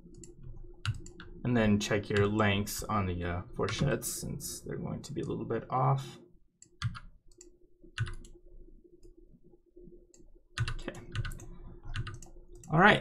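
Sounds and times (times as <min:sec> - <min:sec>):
faint steady hum: 0:00.0 - 0:13.0
computer mouse clicks: 0:00.1 - 0:01.4, 0:06.6 - 0:08.4, 0:10.1 - 0:12.8.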